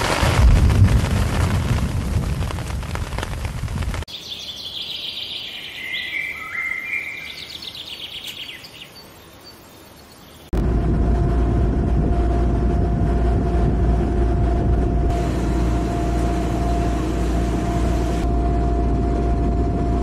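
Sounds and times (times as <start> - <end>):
heavy rain: 0.0 - 4.1
thunder rumbling: 0.0 - 4.1, 10.6 - 20.0
bird whistling song: 4.1 - 10.4.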